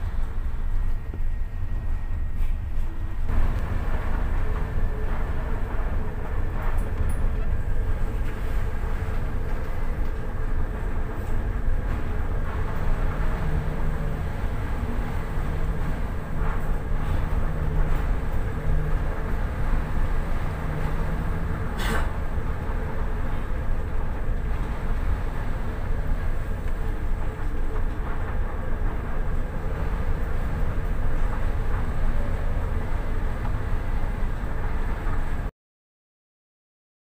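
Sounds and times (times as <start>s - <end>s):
low hum: 0.0s - 35.5s
strong wind and heavy sea: 0.0s - 35.5s.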